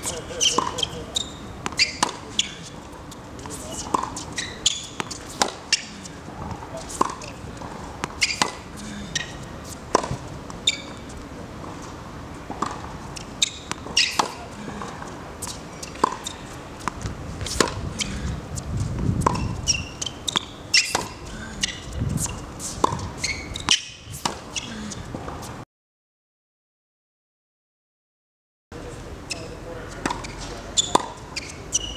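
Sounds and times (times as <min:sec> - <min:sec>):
tennis racket hitting ball: 0:00.0 - 0:11.8, 0:12.5 - 0:18.3, 0:19.2 - 0:24.5, 0:30.0 - 0:31.9
tennis ball bouncing: 0:00.0 - 0:25.4, 0:30.0 - 0:31.9.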